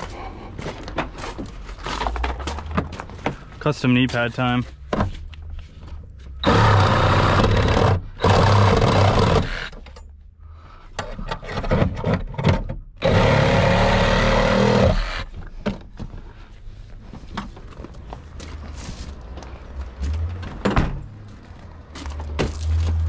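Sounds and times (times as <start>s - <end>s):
scraping and clatter: 0.6s - 3.5s
power tool cutting: 6.4s - 9.8s, 13.0s - 15.3s.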